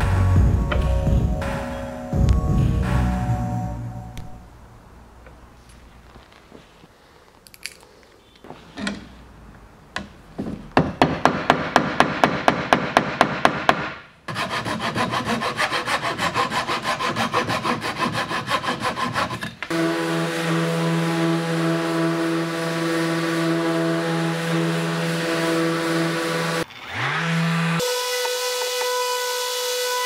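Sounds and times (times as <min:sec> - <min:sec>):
hand saw cutting wood: 0:14.3 - 0:30.0
sander humming: 0:19.7 - 0:30.0.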